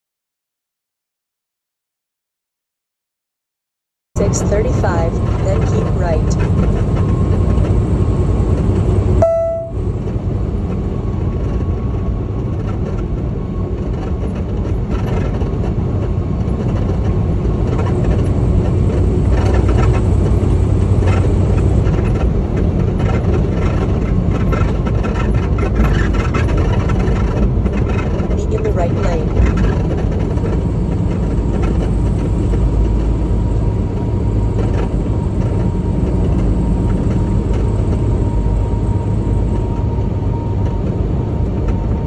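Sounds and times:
truck engine and road noise: 4.2 - 42.0
faint clicks and rattles: 13.8 - 33.1.

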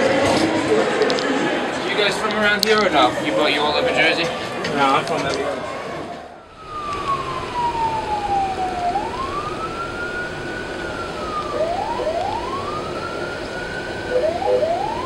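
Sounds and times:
ambulance siren wailing: 3.1 - 15.0.

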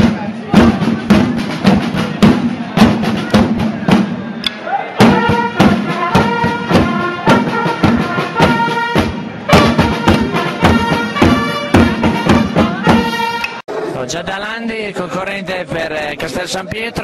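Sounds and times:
marching drums beating: 0.0 - 4.4, 5.0 - 13.5
wind instrument holding notes: 5.0 - 13.6.

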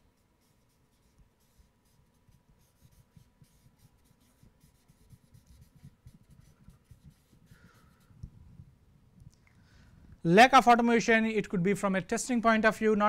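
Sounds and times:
marker scratching on paper: 0.0 - 8.2.

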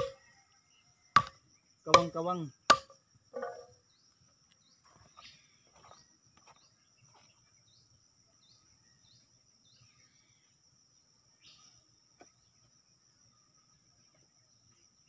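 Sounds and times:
high insect hum: 0.0 - 15.0
logs knocking on woodpile: 1.9 - 2.9.

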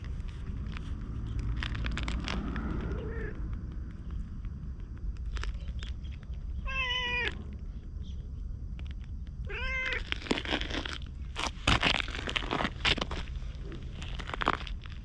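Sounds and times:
scratchy rustles and crunches: 0.0 - 7.7, 8.8 - 15.0
cat meowing: 2.9 - 3.4, 6.6 - 7.4, 9.5 - 10.0.

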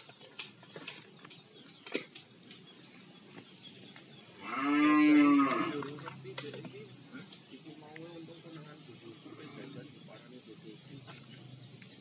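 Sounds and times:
cow mooing: 4.4 - 5.9.

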